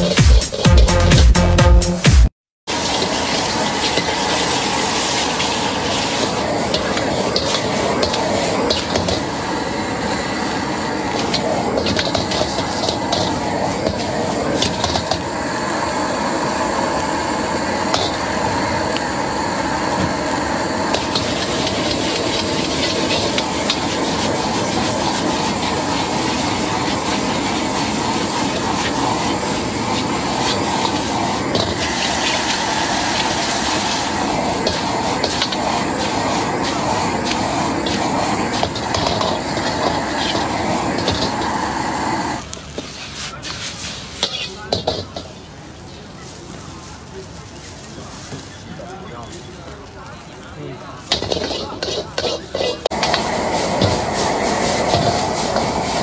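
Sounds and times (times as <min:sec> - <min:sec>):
metal spatula scraping wok: 0:00.0 - 0:00.8, 0:02.9 - 0:15.2, 0:17.9 - 0:18.4, 0:20.7 - 0:45.4, 0:51.1 - 0:56.0
food sizzling in a wok: 0:00.0 - 0:01.0, 0:02.7 - 0:56.0
gas burner roaring: 0:02.6 - 0:42.6, 0:49.6 - 0:56.0.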